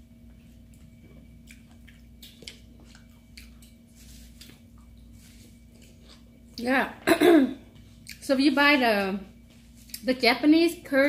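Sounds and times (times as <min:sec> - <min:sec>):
faint steady hum: 0:00.0 - 0:11.0
chewing: 0:00.3 - 0:06.4, 0:07.8 - 0:08.2.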